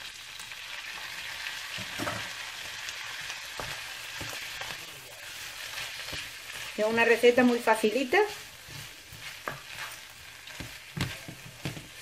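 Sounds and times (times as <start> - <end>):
spaghetti sizzling in frying pan: 0.0 - 12.0
wooden spatula knocking and scraping: 1.8 - 2.4, 3.5 - 12.0.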